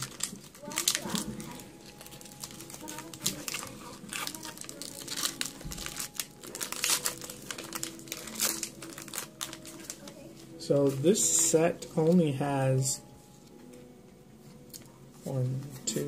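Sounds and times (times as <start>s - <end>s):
foil wrapper crinkling and tearing: 0.0s - 11.0s.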